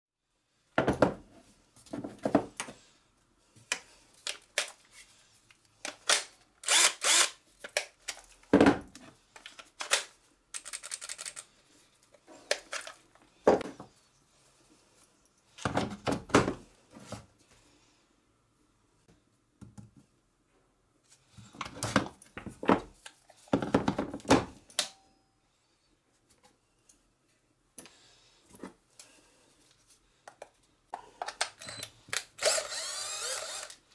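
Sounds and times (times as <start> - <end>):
plastic battery packs clicking: 9.4 - 11.5.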